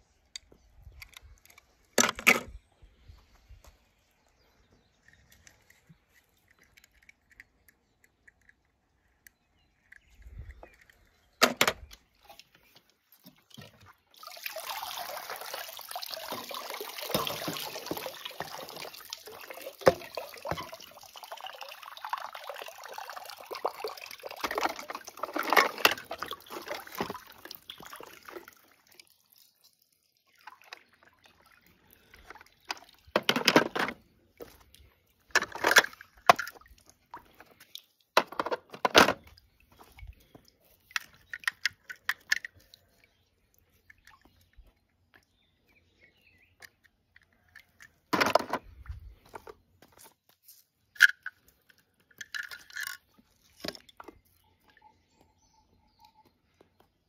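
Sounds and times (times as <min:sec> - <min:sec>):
water pouring and splashing: 0:11.8 - 0:46.0, 0:47.2 - 0:55.2.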